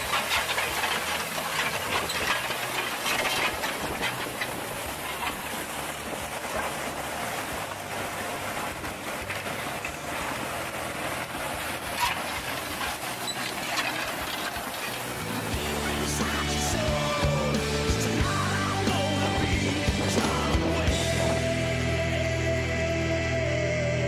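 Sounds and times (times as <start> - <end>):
farm machinery rumble and clatter: 0.0 - 24.0
music: 15.2 - 24.0.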